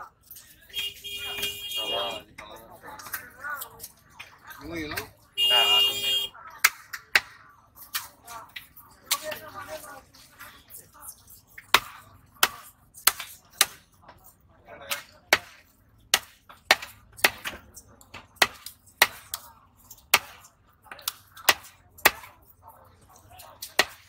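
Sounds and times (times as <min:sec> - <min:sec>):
knife chopping on wooden block: 0:11.6 - 0:13.9, 0:14.9 - 0:19.5, 0:20.1 - 0:22.3, 0:23.7 - 0:24.0.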